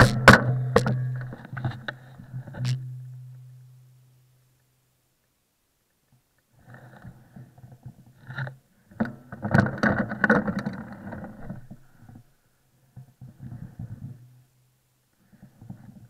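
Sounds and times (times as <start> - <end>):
bike knocking over bumps: 0.0 - 1.2.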